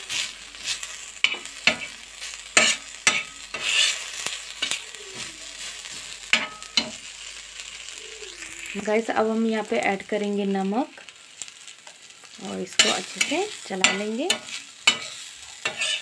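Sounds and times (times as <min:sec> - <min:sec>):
spatula scraping a griddle: 0:00.0 - 0:07.0, 0:12.7 - 0:16.0
food sizzling on a griddle: 0:00.0 - 0:16.0.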